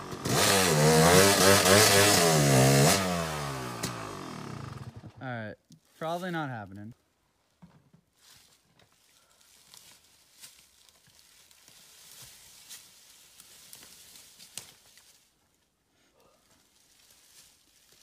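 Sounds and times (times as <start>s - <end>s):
dry leaves rustling and crunching: 8.2s - 15.4s, 16.6s - 18.0s
twigs snapping: 12.7s - 15.2s.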